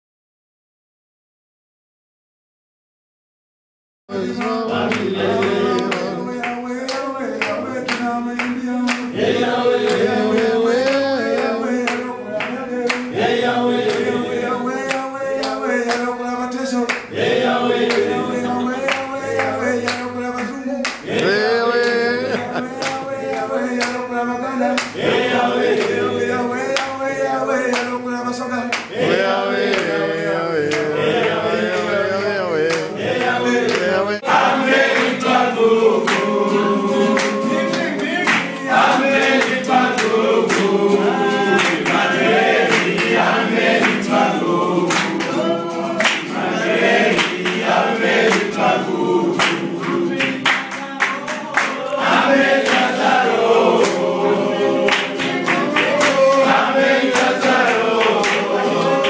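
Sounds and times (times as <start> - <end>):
acoustic guitar: 4.1 - 59.0
men singing in unison: 4.1 - 59.0
hand clapping: 4.3 - 17.1, 17.7 - 24.1, 24.7 - 25.0, 25.6 - 26.1, 26.7 - 27.0, 27.6 - 28.0, 28.7 - 29.0, 29.6 - 30.0, 30.6 - 32.0, 32.6 - 59.0.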